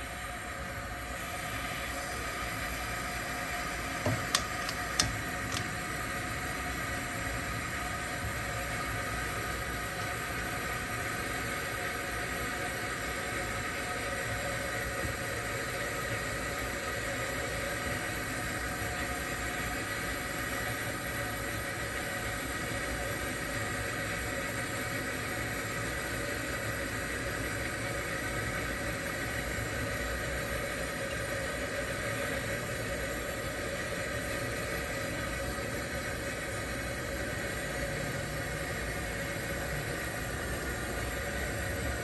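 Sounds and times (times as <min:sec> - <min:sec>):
camp stove burner hissing: 0:00.0 - 0:42.0
sharp clicks: 0:04.1 - 0:05.8.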